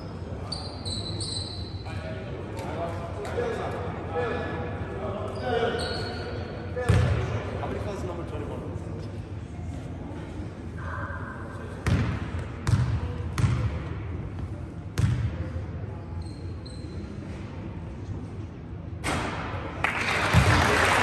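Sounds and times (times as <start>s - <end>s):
crowd applause: 19.8s - 21.0s.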